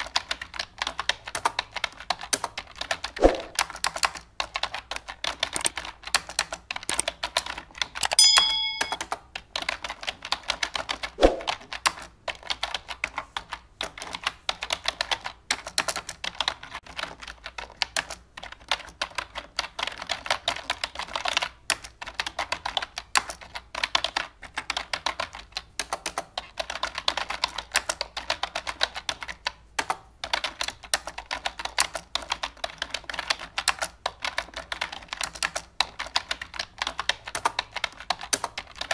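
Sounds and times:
keyboard typing: 0.0s - 38.9s
sharp thud: 3.2s - 3.6s, 11.2s - 11.5s
short ringing chime: 8.2s - 9.0s.

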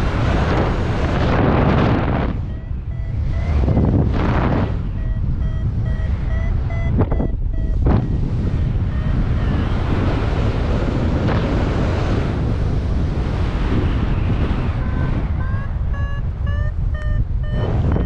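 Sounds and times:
wind rushing over microphone: 0.0s - 18.0s
variometer short beeps: 2.2s - 10.1s, 14.8s - 18.0s.

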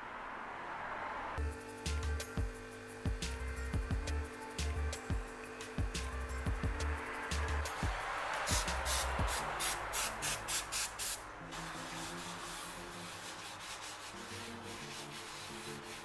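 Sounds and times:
soft background music: 1.4s - 10.6s, 11.3s - 16.0s
aerosol spray hissing: 8.5s - 16.0s
paper towel rubbing a pan: 11.6s - 16.0s.

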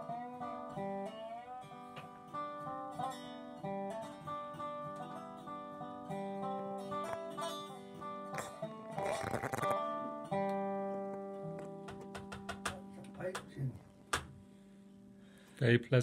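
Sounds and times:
slide guitar melody: 0.0s - 13.2s.

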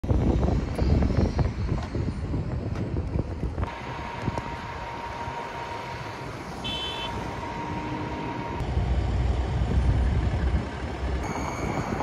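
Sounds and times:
wind buffeting microphone: 0.0s - 5.0s
road traffic hum: 0.0s - 12.0s.

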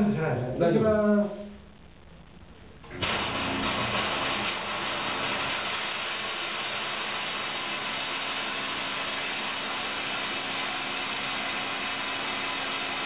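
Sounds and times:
faint low hum: 0.0s - 3.0s
fog generator hissing: 2.6s - 13.0s.

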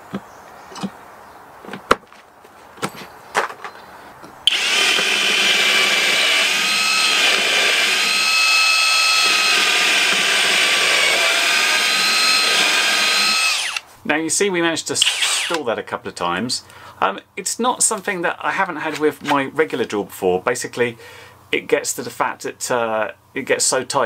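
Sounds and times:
cordless drill boring into wood: 4.5s - 13.9s, 15.0s - 15.6s.

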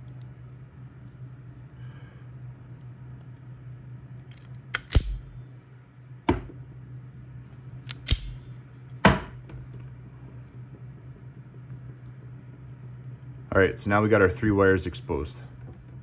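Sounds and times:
steady low hum: 0.0s - 16.0s
wire strippers snapping: 7.9s - 8.4s.

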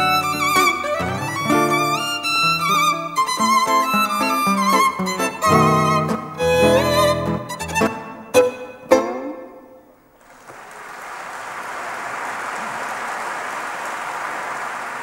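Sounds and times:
violin and guitar chords: 0.0s - 9.9s
audience applauding: 10.2s - 15.0s.

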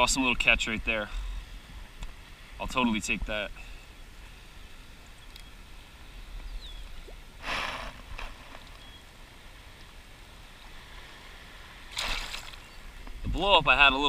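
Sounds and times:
fish splashing in water: 11.9s - 12.7s.

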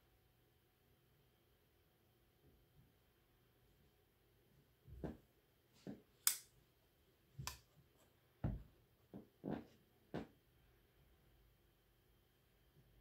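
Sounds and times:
folding knife clicks: 6.2s - 6.5s.

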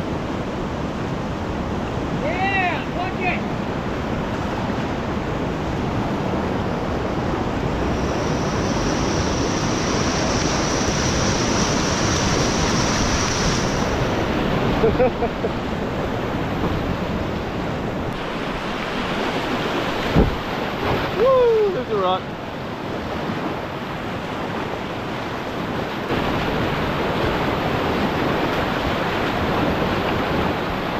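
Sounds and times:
whitewater rushing: 0.0s - 30.9s
wind buffeting microphone: 3.7s - 21.9s.

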